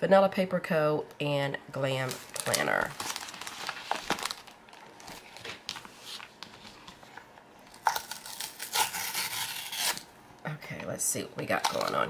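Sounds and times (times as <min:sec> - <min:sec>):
packaging rustling and crinkling: 0:02.0 - 0:08.4.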